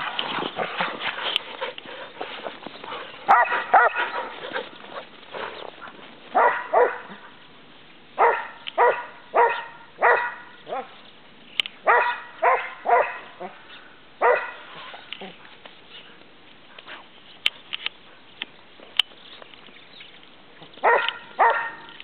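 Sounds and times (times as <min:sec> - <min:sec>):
dog barking: 0:03.3 - 0:04.3, 0:06.4 - 0:07.2, 0:08.2 - 0:10.9, 0:11.8 - 0:13.6, 0:14.2 - 0:14.6, 0:20.8 - 0:21.9.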